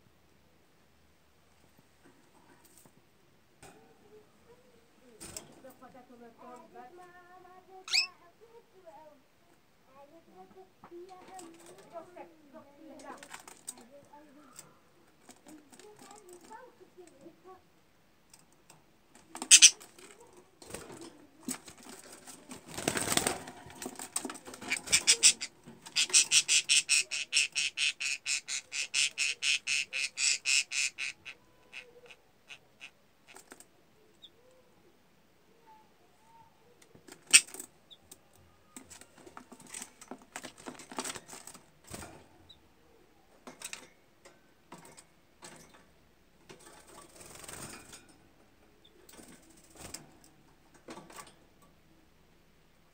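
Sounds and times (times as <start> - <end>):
budgerigar soft chatter: 7.8 - 8.2, 19.4 - 20.3, 24.5 - 33.5
bird wings fluttering: 19.4 - 26.3.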